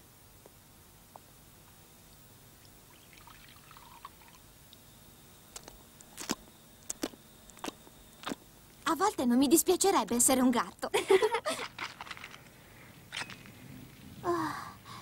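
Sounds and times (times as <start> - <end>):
milk pouring into dish: 2.9 - 4.4.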